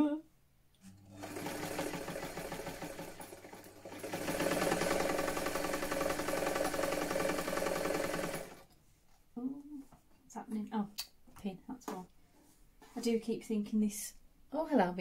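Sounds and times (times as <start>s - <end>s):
sewing machine stitching: 1.1s - 8.6s.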